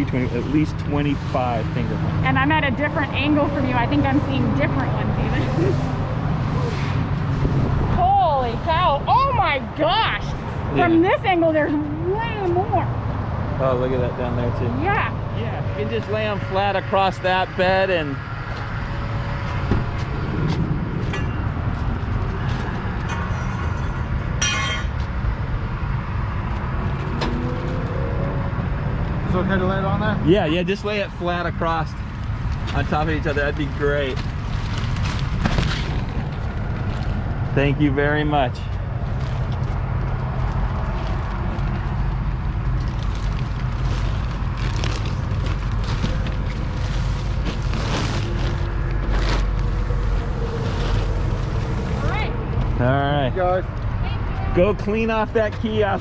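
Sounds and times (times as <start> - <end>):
low outdoor rumble: 0.0 - 56.0
plastic wrapping crinkling: 42.8 - 51.3.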